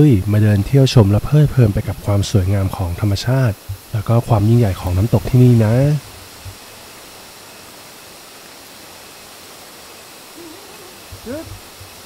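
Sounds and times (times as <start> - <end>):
waterfall rushing: 0.6 - 12.0
faint rising call: 10.3 - 11.6.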